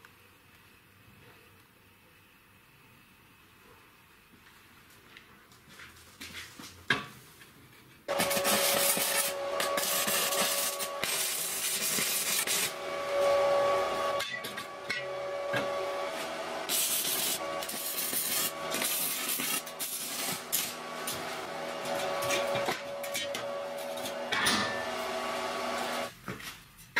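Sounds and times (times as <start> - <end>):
welding hiss: 8.1 - 26.1.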